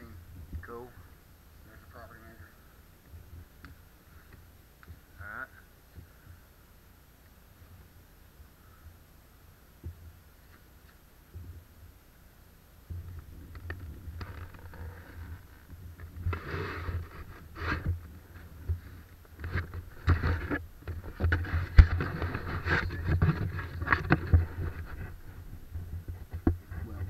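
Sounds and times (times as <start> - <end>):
rustling and scraping of gear: 12.9 - 27.0.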